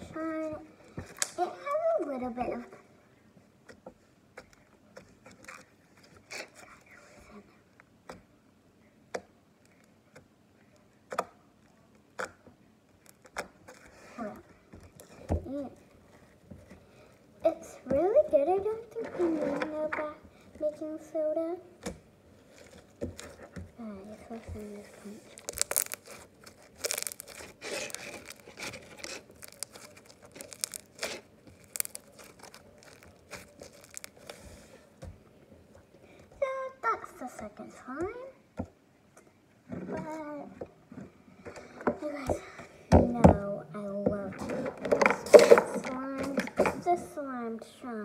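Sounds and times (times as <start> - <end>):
slime squishing and crackling: 22.5 - 34.8
slime pops: 25.4 - 26.2.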